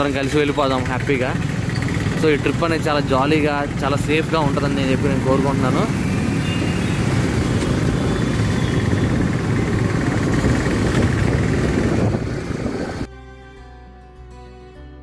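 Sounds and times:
motorcycle running: 0.0s - 13.1s
wind rush of riding: 4.3s - 13.1s.

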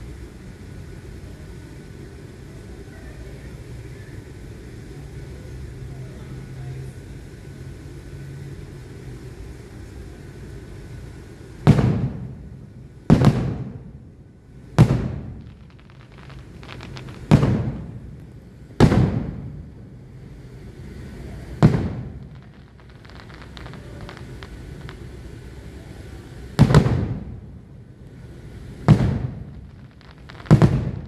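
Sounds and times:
firework shells booming: 11.4s - 31.0s
faint crackling: 11.6s - 31.0s.

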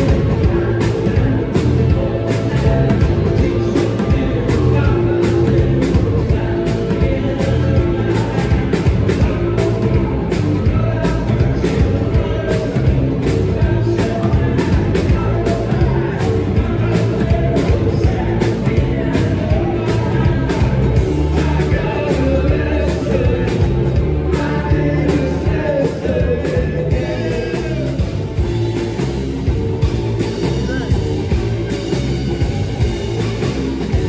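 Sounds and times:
electric guitar: 0.0s - 34.0s
rock band playing loudly: 0.0s - 34.0s
steady drumbeat: 0.0s - 34.0s.

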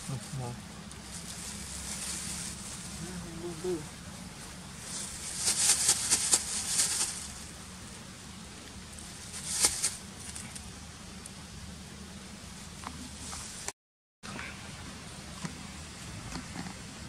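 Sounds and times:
scratchy crackling rustles: 0.0s - 8.0s, 8.7s - 10.7s
faint low hum: 0.0s - 13.7s.

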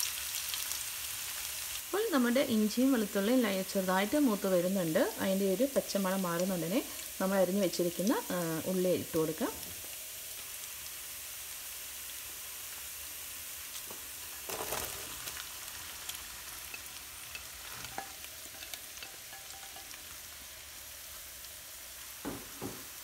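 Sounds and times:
garlic sizzling in hot oil: 0.0s - 23.0s
onions tipped into pan: 13.9s - 20.2s
spoon scraping and clinking: 16.7s - 20.2s.

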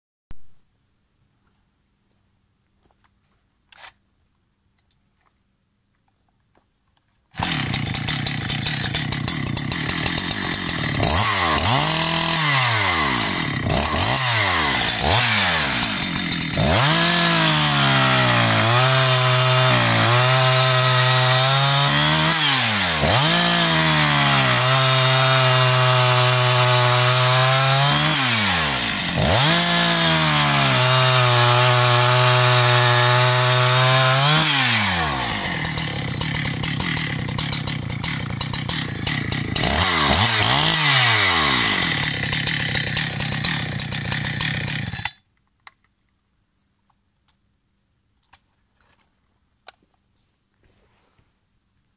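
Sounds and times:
chainsaw revving and running: 7.4s - 45.2s.

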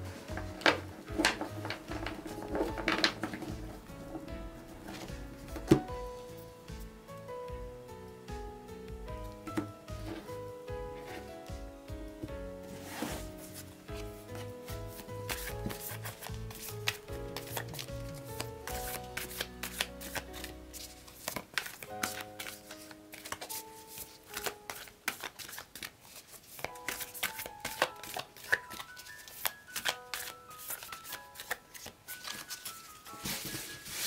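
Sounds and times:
gentle background music: 0.0s - 34.0s
cards being shuffled: 0.1s - 5.9s, 12.8s - 34.0s.

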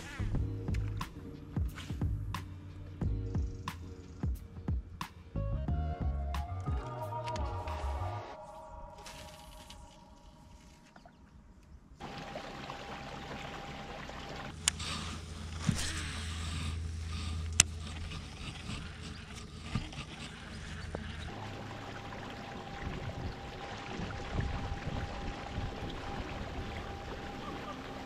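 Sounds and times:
steady low motor hum: 0.2s - 9.3s, 11.4s - 28.0s
water rushing along hull: 12.0s - 28.0s.

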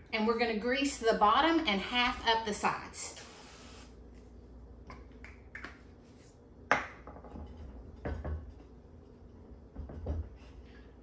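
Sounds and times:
hand rubbing ceramic dish: 7.4s - 10.9s.

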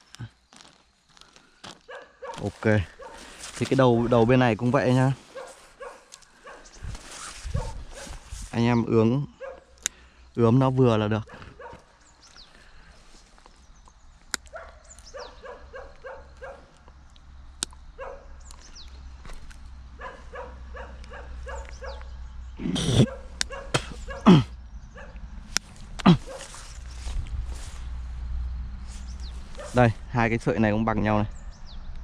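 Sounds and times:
dog barking: 1.9s - 3.3s, 5.3s - 6.8s, 7.5s - 8.2s, 9.3s - 9.8s, 11.2s - 11.9s, 14.5s - 16.8s, 18.0s - 18.4s, 20.0s - 22.1s, 23.0s - 25.2s, 26.1s - 26.6s, 29.5s - 29.8s
sharp clicks: 16.8s - 18.6s.

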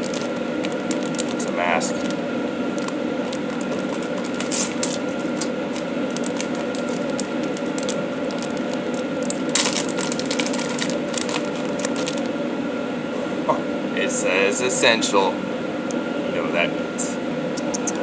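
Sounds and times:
plastic packaging crinkling: 0.0s - 12.3s
steady machine hum: 0.0s - 18.0s.

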